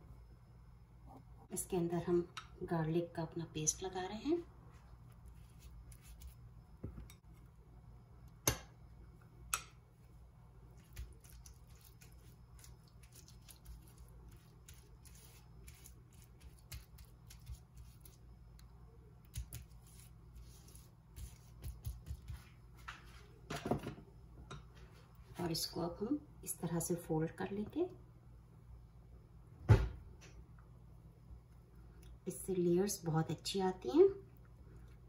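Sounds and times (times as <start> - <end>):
pastry brush dabbing and scraping: 4.7 - 7.2, 10.7 - 18.6, 19.2 - 22.6.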